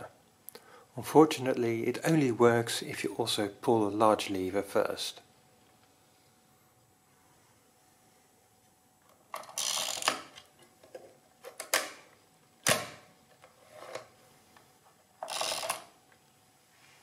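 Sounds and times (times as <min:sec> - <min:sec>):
rasping ratchet: 0:09.6 - 0:10.2, 0:15.2 - 0:15.9
adding machine clicks: 0:15.2 - 0:15.9.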